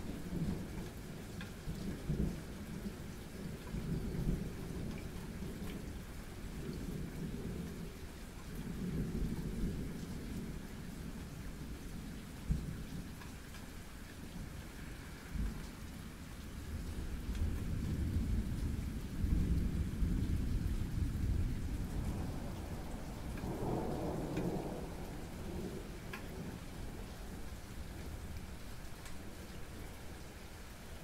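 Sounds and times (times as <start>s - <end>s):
raindrops tapping: 0.0s - 5.9s, 12.4s - 14.3s, 15.4s - 31.0s
steady rain: 0.0s - 31.0s
thunder rumbling: 16.7s - 30.2s.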